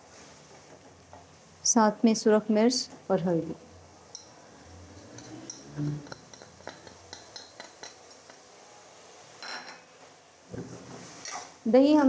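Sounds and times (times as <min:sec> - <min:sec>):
metal spoon tapping pot: 0:05.1 - 0:08.4.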